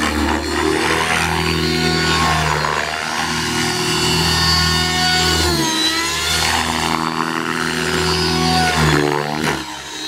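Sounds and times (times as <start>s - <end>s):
electric motor whine: 0.0s - 10.0s
helicopter rotor buzz: 0.0s - 10.0s.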